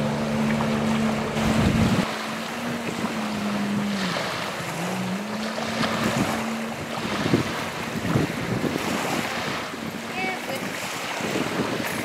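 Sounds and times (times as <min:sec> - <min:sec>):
jet ski engine droning: 0:00.0 - 0:12.0
wind buffeting microphone: 0:00.0 - 0:12.0.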